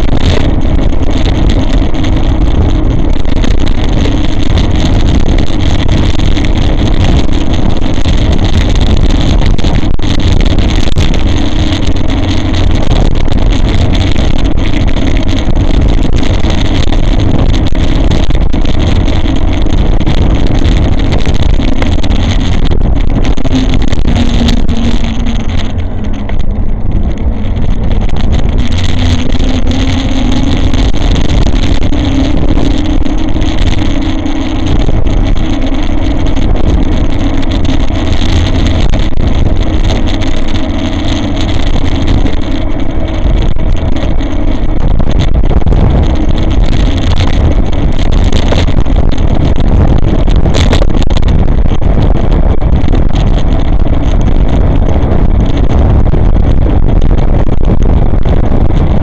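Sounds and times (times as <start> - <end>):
electric bike motor hum: 0.0 - 59.0
road rumble: 0.0 - 59.0
wind rush: 0.0 - 59.0.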